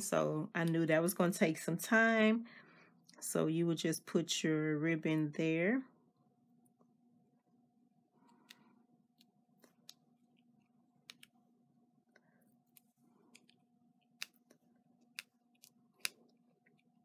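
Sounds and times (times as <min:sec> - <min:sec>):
faint steady hum: 0:00.0 - 0:17.0
fingernails clicking on card: 0:12.7 - 0:16.8.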